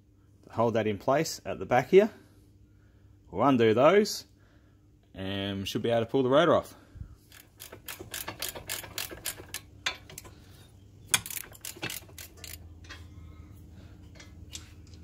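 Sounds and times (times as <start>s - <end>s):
socket ratchet clicking: 7.3s - 10.3s, 11.1s - 12.7s.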